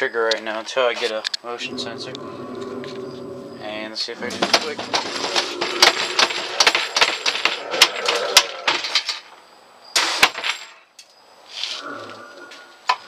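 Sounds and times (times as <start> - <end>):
wooden lid banging and rattling: 4.3 - 9.3.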